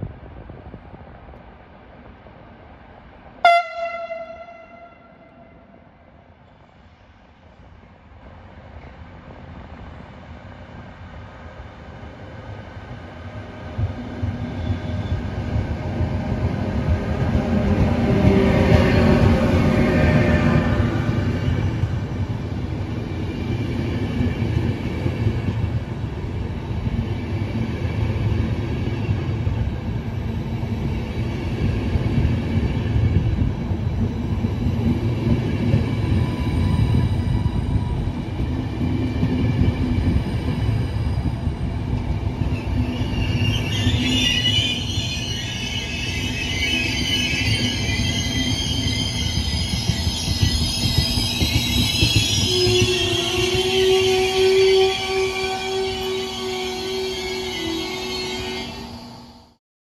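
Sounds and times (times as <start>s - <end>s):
train wheels rumbling on track: 0.0s - 59.3s
metallic wheel squeal: 42.6s - 55.0s.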